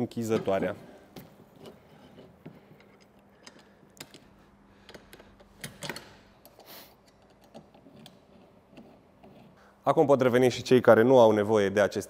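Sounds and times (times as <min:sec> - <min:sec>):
metal hardware clicking and knocking: 0:00.2 - 0:09.4
metal scrape: 0:01.5 - 0:02.4.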